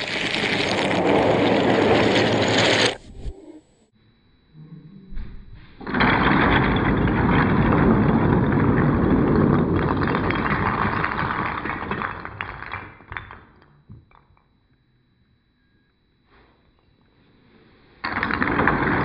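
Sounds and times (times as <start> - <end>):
wooden logs clattering: 0.0 - 3.1, 5.8 - 13.4, 18.0 - 19.0.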